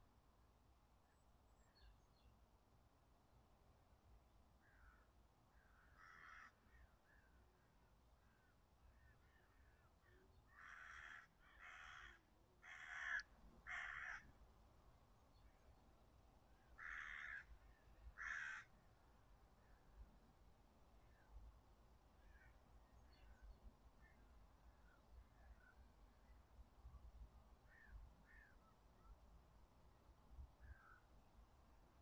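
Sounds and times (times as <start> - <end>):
crow cawing: 5.6 - 6.7, 10.5 - 14.3, 16.8 - 17.5, 18.2 - 18.7.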